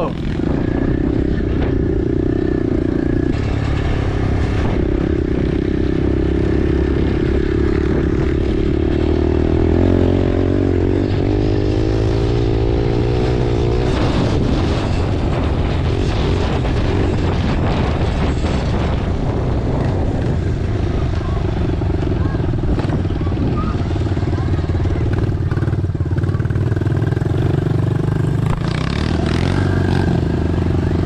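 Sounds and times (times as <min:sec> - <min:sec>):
pit bike engine running: 0:00.0 - 0:31.0.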